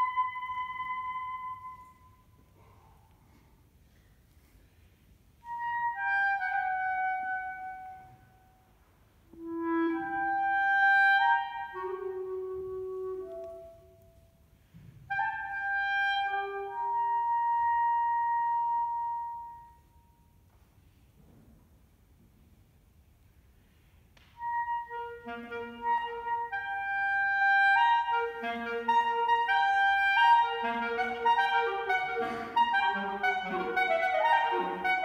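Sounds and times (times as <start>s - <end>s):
solo clarinet playing: 0.0s - 2.4s, 5.4s - 14.4s, 15.1s - 20.2s, 24.4s - 35.0s.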